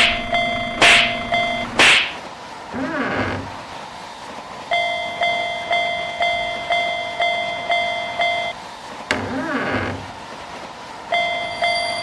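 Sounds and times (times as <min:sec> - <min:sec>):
railroad crossing bell dinging: 0:00.0 - 0:01.8, 0:04.7 - 0:08.6, 0:11.1 - 0:12.0.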